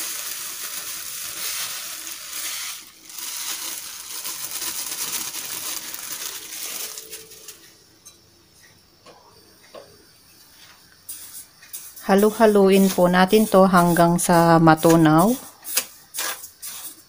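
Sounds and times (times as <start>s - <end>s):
plastic bag crinkling: 0.0s - 7.6s
sugar pouring into metal pan: 0.0s - 7.6s.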